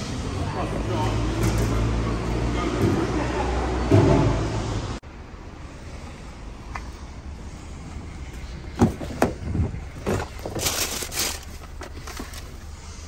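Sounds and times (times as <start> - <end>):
plastic and paper rustling: 10.0 - 12.8.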